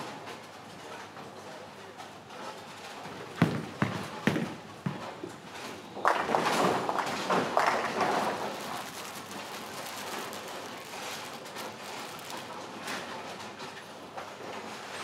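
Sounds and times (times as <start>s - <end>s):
bowling alley background noise: 0.0s - 15.0s
bowling pins crashing: 3.4s - 5.3s, 6.0s - 8.6s.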